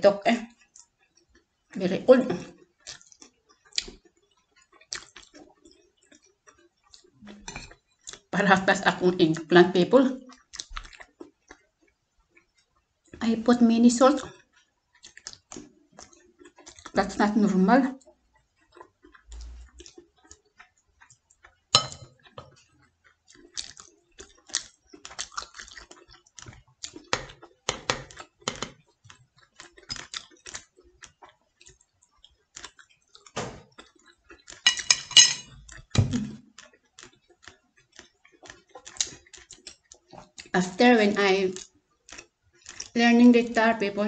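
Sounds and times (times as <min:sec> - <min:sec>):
chopsticks clicking on ceramic plate: 0:34.5 - 0:35.8.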